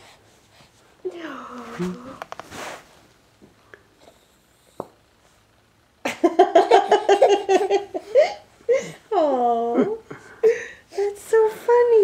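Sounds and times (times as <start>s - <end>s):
baby giggling: 6.4s - 8.4s.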